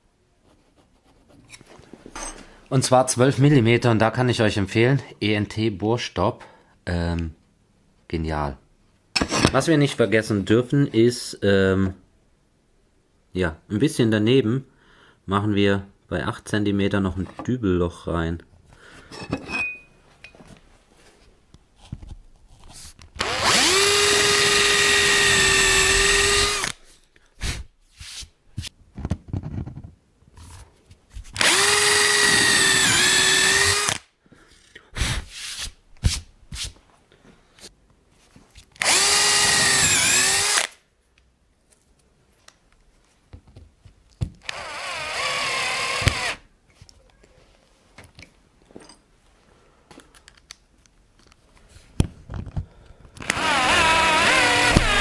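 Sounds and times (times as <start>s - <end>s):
drill boring into wood: 23.2s - 26.8s, 31.4s - 34.0s, 38.8s - 40.7s, 44.4s - 46.5s, 53.2s - 55.0s.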